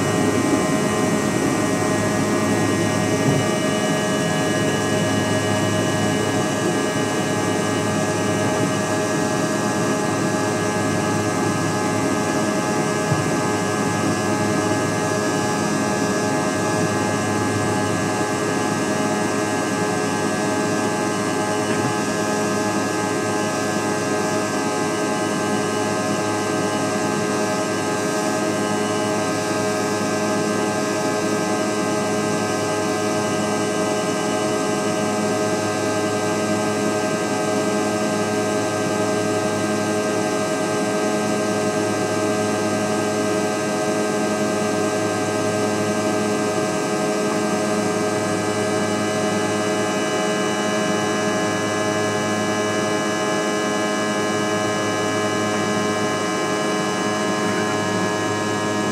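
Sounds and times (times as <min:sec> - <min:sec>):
steady whining tones: 0:00.0 - 0:24.8
airplane cabin engine drone: 0:00.0 - 0:58.9.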